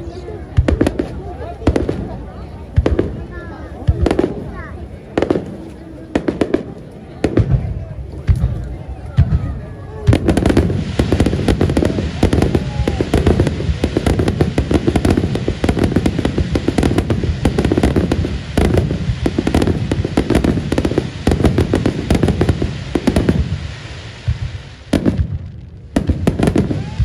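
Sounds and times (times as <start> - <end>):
firework shells bursting: 10.1 - 27.0.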